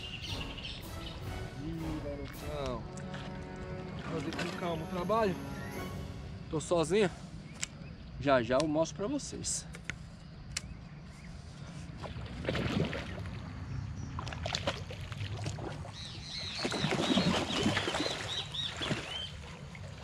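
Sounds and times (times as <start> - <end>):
bird chirping: 0.0 - 2.6, 4.6 - 9.2
water splashing and sloshing: 0.0 - 7.8, 11.6 - 20.0.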